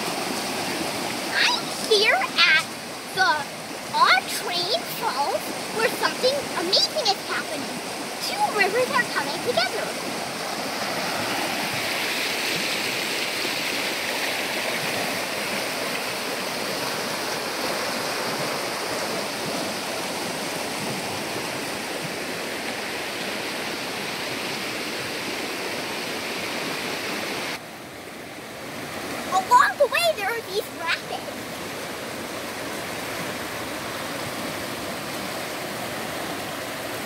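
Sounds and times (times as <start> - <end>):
river rapids rushing over rocks: 0.0 - 27.6.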